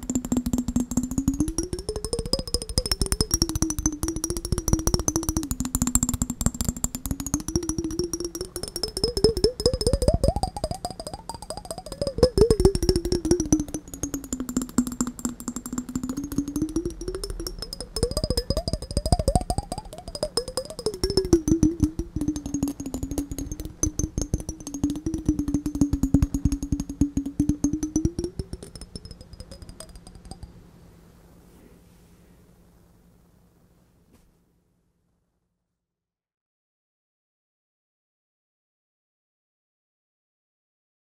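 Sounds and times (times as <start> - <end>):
fingers tapping on glass jar: 0.0 - 30.6.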